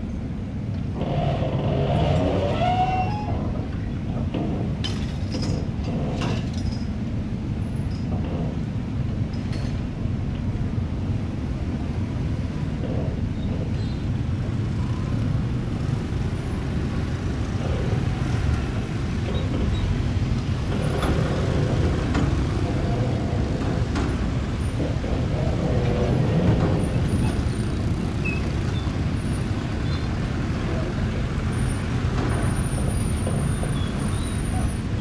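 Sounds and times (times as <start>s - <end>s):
traffic engine rumble: 0.0s - 35.0s
short squeaks: 1.0s - 3.7s, 28.2s - 30.1s.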